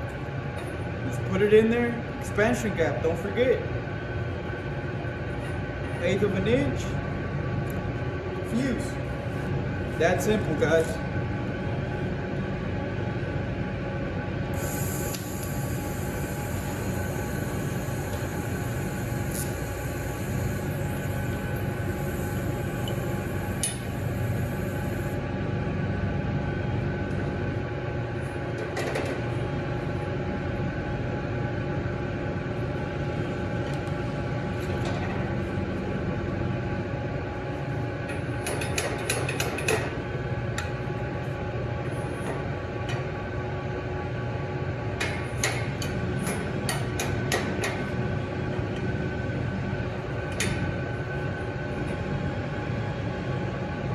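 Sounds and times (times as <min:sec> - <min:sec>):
shop equipment hum: 0:00.0 - 0:53.9
welding torch hissing: 0:14.5 - 0:25.2.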